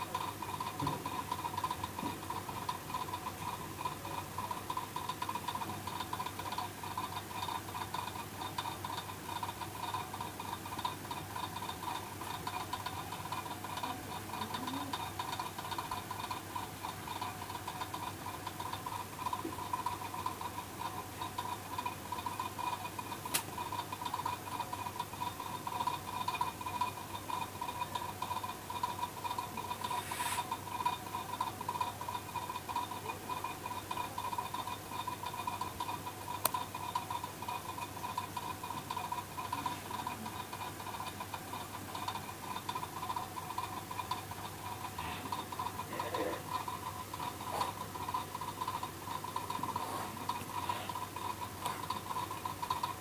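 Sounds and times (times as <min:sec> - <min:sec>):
electrical hum and hiss: 0:00.0 - 0:53.0.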